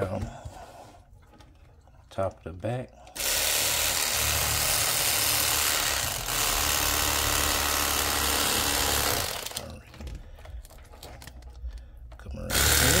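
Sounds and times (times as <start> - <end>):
electric knife cutting fish: 3.2 - 9.6, 12.5 - 13.0.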